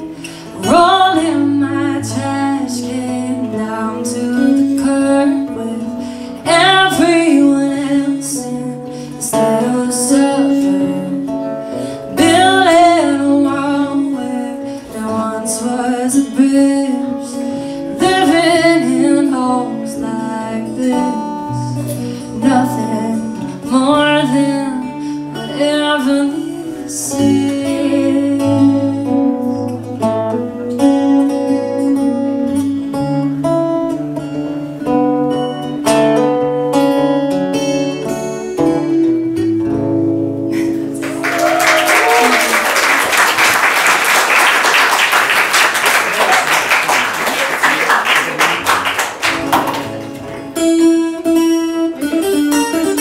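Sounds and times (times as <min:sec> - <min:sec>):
woman singing: 0:00.0 - 0:32.7
acoustic guitars strummed: 0:00.0 - 0:41.4, 0:43.0 - 0:53.0.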